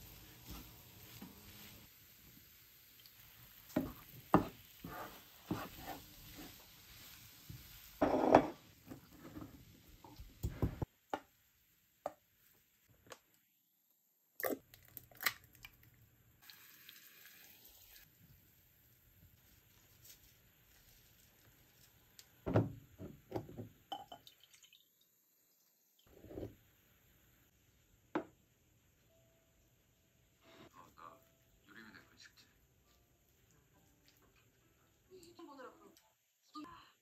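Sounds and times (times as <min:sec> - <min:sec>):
faint sizzle: 0:00.0 - 0:13.0, 0:16.0 - 0:22.5
spatula scraping frying pan: 0:03.8 - 0:09.4.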